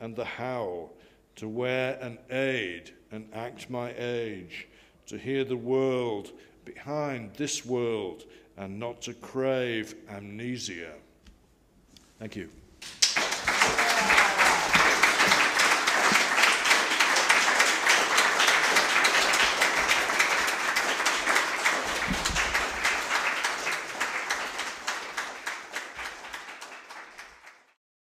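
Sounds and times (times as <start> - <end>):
audience applauding: 12.8 - 27.8.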